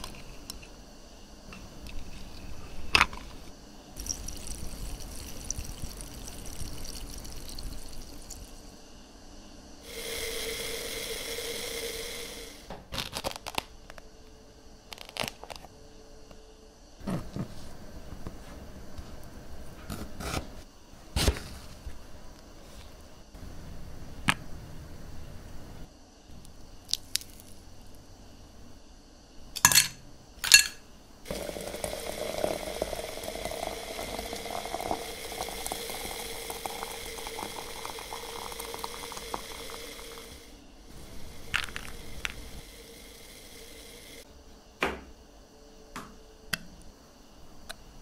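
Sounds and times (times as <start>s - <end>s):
liquid pouring: 4.0s - 8.8s, 31.3s - 40.4s, 41.4s - 42.6s
ice clinking in a glass: 29.6s - 39.0s.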